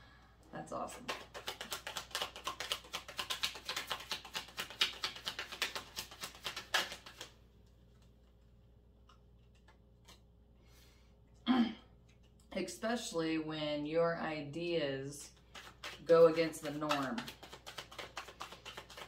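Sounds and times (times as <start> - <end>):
cards being shuffled: 0.9 - 8.4, 15.3 - 19.0.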